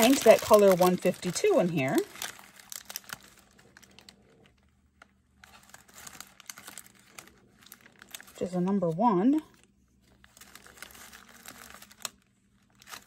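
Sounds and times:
plastic bags crinkling: 0.0s - 13.0s.

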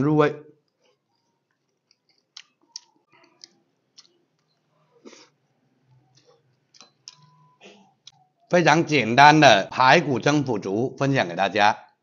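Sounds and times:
person chewing with lip smacks: 0.8s - 8.2s.

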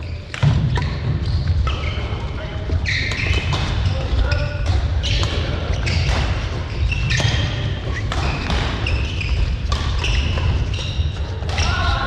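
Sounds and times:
shoes squeaking on court floor: 0.0s - 11.9s
rackets striking shuttlecock: 4.6s - 11.7s.

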